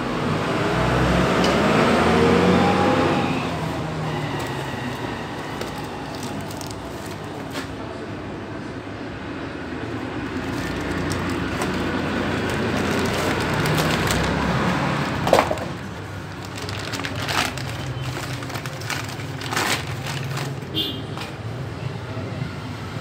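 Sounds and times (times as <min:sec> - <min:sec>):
plastic wrapping crinkling: 0:04.2 - 0:07.7, 0:10.2 - 0:21.4.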